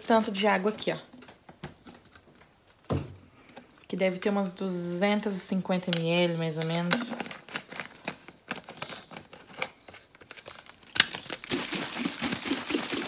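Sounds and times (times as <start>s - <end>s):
small plastic clicks and rustles: 5.8s - 11.7s.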